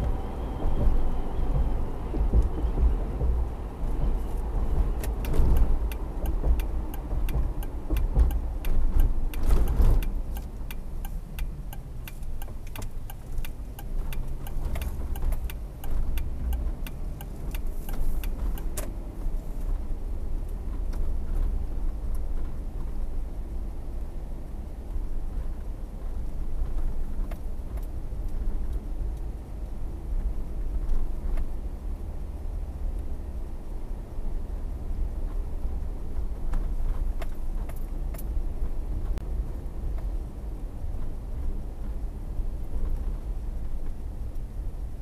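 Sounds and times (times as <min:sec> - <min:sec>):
car road and engine rumble: 0:00.0 - 0:45.0
sharp ticks: 0:05.0 - 0:18.8.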